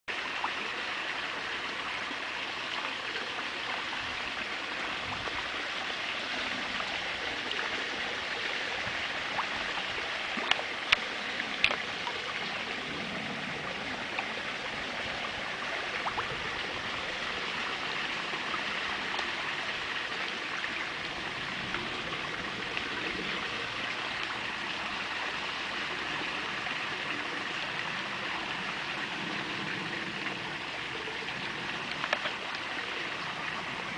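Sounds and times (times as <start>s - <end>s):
running water in a pond: 0.0s - 33.9s
sharp clicks at water surface: 9.3s - 12.4s, 31.4s - 32.7s.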